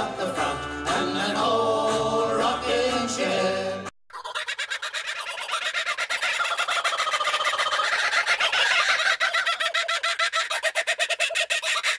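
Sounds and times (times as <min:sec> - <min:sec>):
kookaburras cackling calls: 0:04.1 - 0:11.9.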